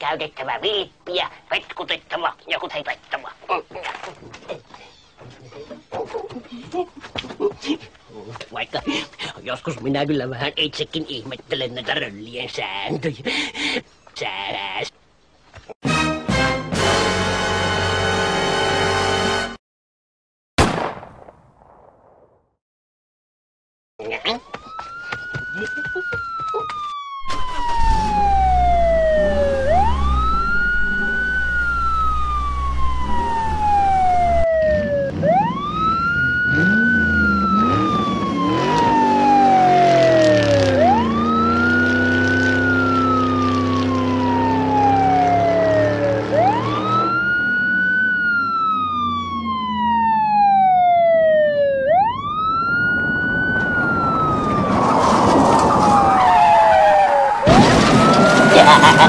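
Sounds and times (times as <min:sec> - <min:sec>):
emergency siren wailing: 0:24.2 - 0:59.0.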